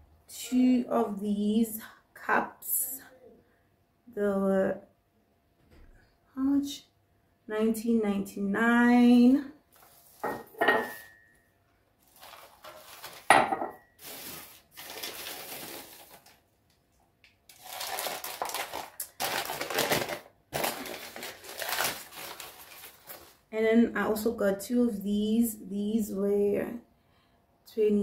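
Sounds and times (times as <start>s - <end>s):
ceramic dishes clinking: 10.2s - 11.3s, 13.3s - 13.8s
crumpled paper rustling: 12.0s - 13.4s, 14.0s - 16.5s, 17.5s - 23.5s.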